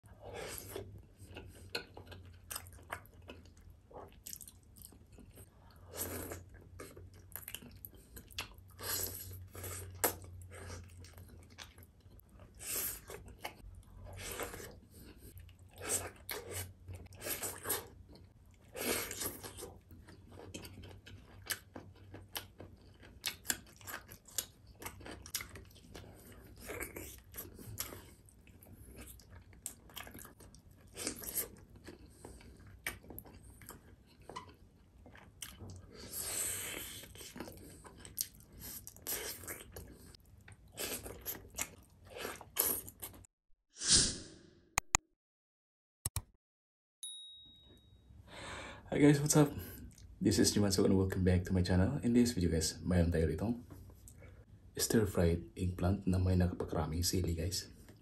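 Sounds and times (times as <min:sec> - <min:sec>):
close chewing: 0:00.4 - 0:43.3.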